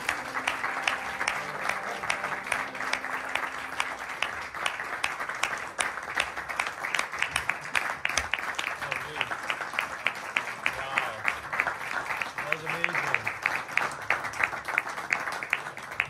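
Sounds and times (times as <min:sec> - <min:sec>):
small audience applauding: 0:00.0 - 0:16.0.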